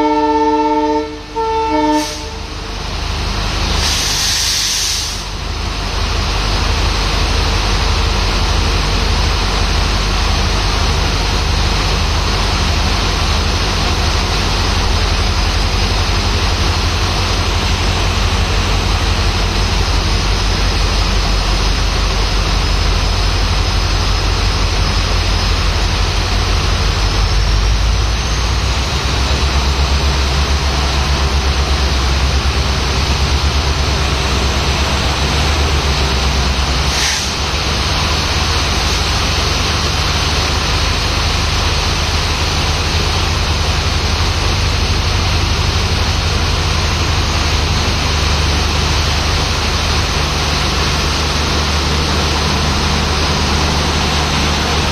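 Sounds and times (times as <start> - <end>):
locomotive engine rumbling: 0.0 - 54.9
heavy rain pouring: 29.4 - 54.9.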